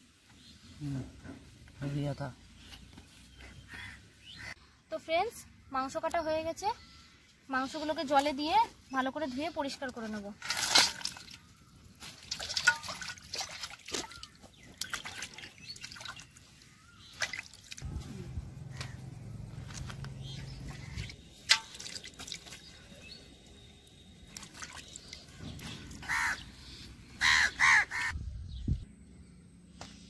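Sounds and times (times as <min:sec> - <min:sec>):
water sloshing in metal bowl: 0:09.9 - 0:17.8, 0:19.6 - 0:23.1, 0:24.2 - 0:26.1
low hum: 0:17.8 - 0:21.8
loud animal calls: 0:26.0 - 0:26.4, 0:27.2 - 0:28.2.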